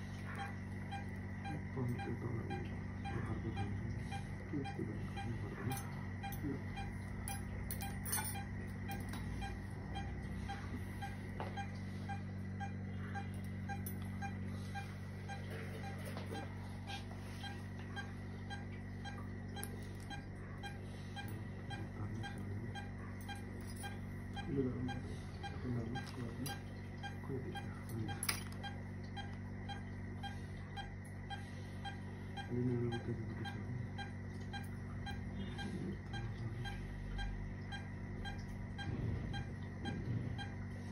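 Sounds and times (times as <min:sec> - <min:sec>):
low murmurs: 0:00.0 - 0:28.5
equipment hum: 0:00.0 - 0:40.9
patient monitor beeping: 0:00.0 - 0:40.9
metal instruments clicking: 0:05.7 - 0:10.1.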